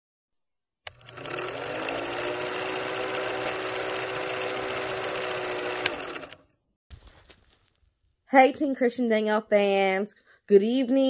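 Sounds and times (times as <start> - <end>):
film projector clatter: 0.9 - 6.4.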